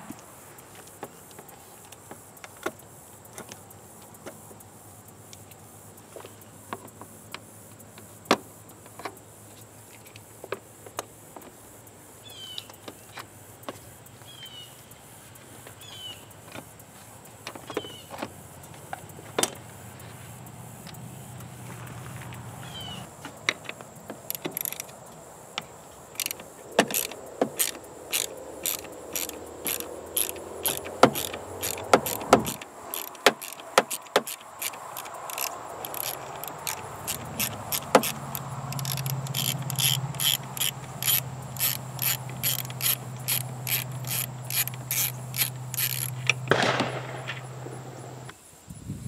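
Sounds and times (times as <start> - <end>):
socket ratchet clicking: 23.4 - 46.8.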